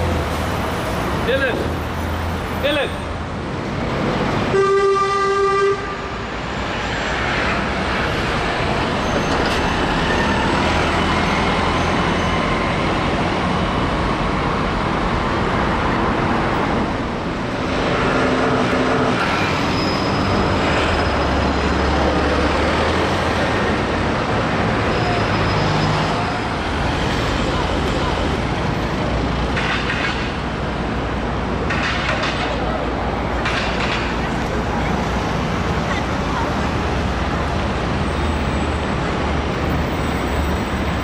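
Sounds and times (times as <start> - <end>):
buses passing: 0.0 - 41.0
road traffic: 0.0 - 41.0
vehicle horn toot: 4.5 - 6.1.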